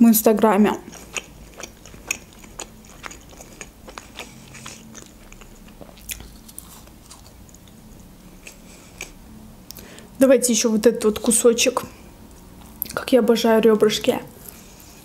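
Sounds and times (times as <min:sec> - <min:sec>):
wet chewing: 0:00.6 - 0:09.8.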